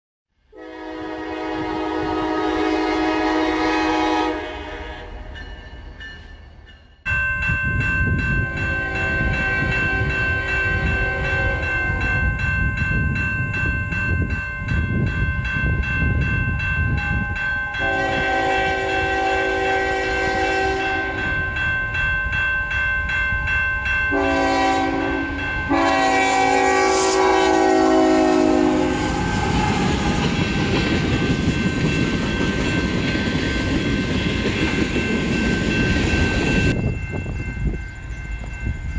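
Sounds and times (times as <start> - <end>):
train horn blasts: 0.5 - 5.4, 8.5 - 12.2, 17.8 - 21.4, 24.1 - 31.2
crossing bell ringing: 0.6 - 38.9
train rumbling on rails: 0.6 - 38.9.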